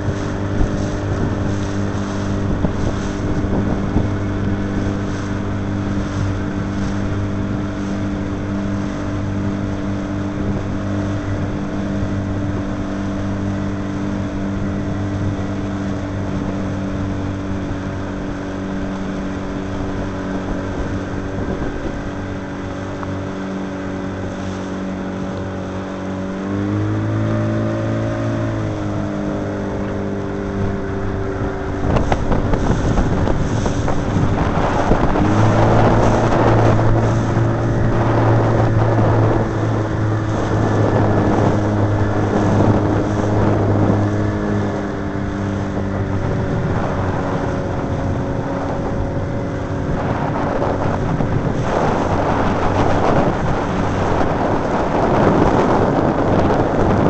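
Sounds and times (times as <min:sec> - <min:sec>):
motorboat engine running: 0:00.0 - 0:57.0.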